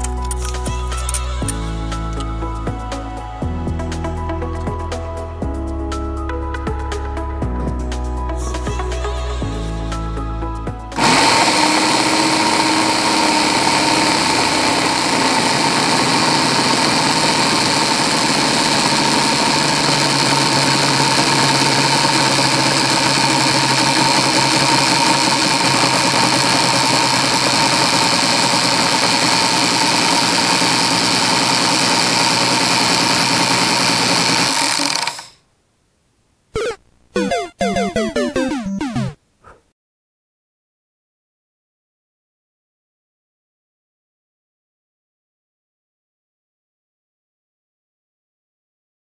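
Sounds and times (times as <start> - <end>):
air compressor motor whine: 11.0 - 35.4.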